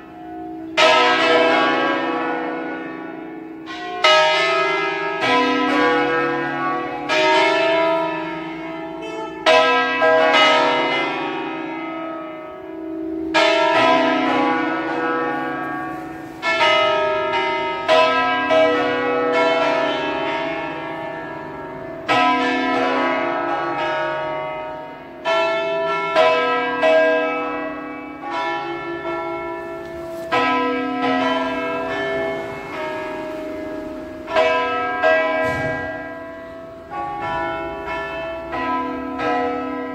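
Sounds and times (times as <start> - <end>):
church bells ringing melodic runs: 0.0 - 39.9
hum of large bell: 25.2 - 39.9.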